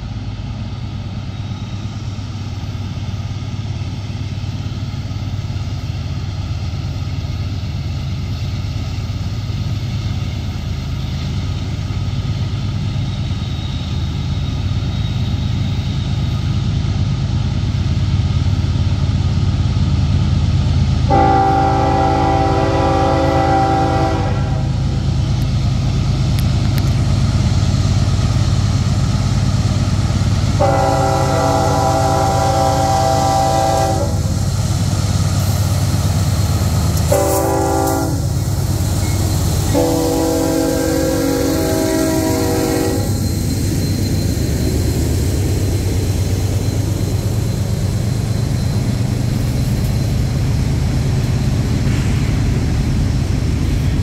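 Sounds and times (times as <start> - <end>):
diesel locomotive engine rumble: 0.0 - 54.0
locomotive horn blast: 21.1 - 24.9, 30.6 - 34.3, 37.1 - 38.3, 39.7 - 43.2.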